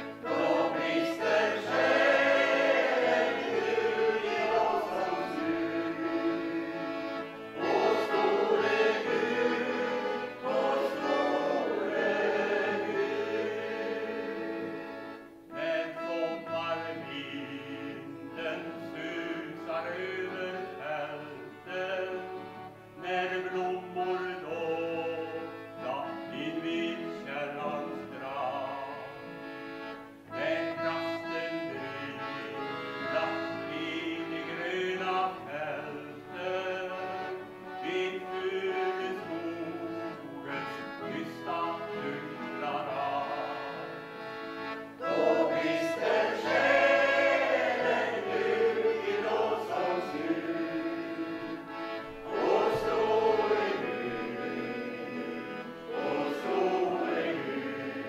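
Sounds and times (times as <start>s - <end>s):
accordion: 0.0s - 58.0s
mixed choir singing: 0.2s - 6.9s, 7.6s - 14.8s, 45.0s - 58.0s
man singing: 15.6s - 22.3s, 23.0s - 29.2s, 30.4s - 43.9s.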